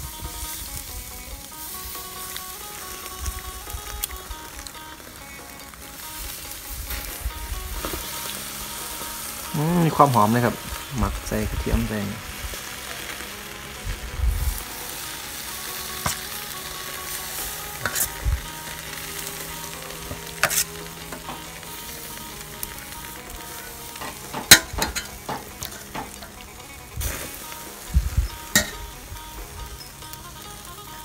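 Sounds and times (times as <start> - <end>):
meat sizzling on a grill: 0.0 - 31.0
clicks and knocks on grill grate: 24.0 - 26.3.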